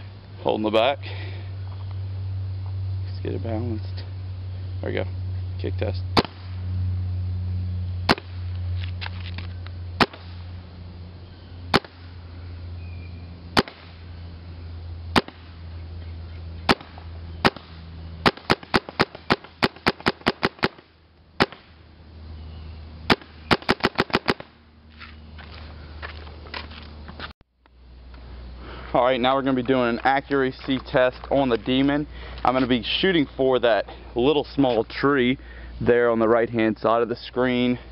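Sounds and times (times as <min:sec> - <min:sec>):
paintball marker shots popping: 0:06.2 - 0:06.5, 0:08.1 - 0:08.4, 0:09.4 - 0:10.4, 0:11.7 - 0:12.0, 0:13.6 - 0:13.9, 0:15.2 - 0:15.5, 0:16.7 - 0:20.8, 0:21.4 - 0:21.7, 0:23.1 - 0:24.5.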